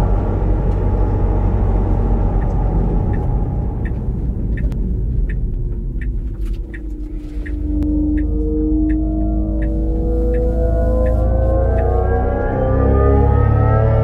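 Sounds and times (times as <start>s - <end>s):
synthesized electric car rumble: 0.0s - 14.0s.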